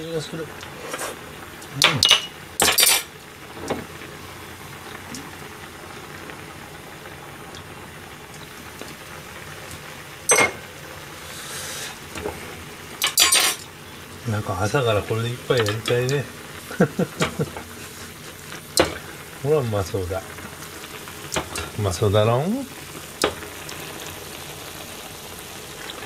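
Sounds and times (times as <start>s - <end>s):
broth bubbling in a pan: 0.0s - 26.0s
sharp clinks: 10.3s - 10.6s.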